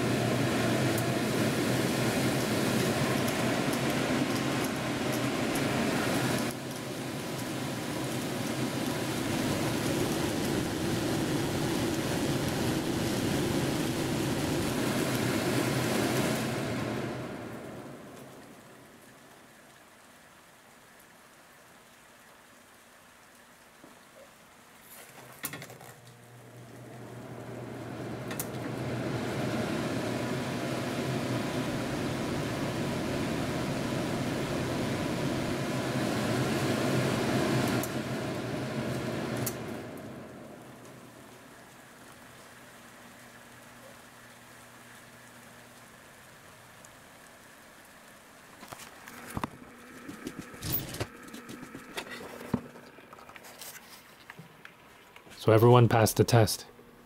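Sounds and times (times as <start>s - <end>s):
actuator humming: 0.0s - 19.1s, 26.0s - 44.1s, 48.5s - 55.3s
range hood fan rushing air: 0.0s - 19.4s, 24.8s - 57.0s.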